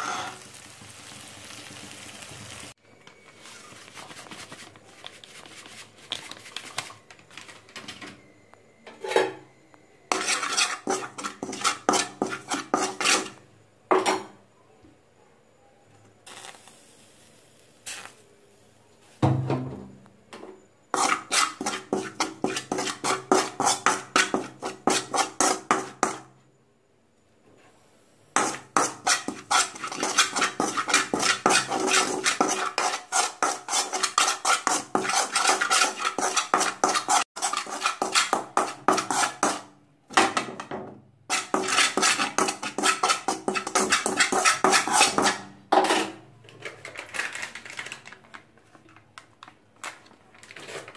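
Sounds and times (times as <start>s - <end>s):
utensil stirring spices in metal pan: 3.4s - 7.5s, 10.1s - 13.4s, 20.9s - 26.3s, 28.3s - 40.6s, 41.3s - 46.2s.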